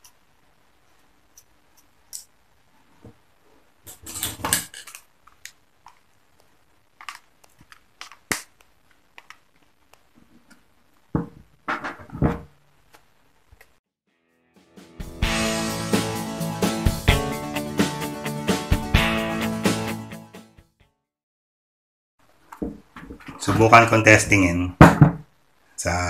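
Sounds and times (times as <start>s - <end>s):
knocks on a bench: 24.8s - 25.2s.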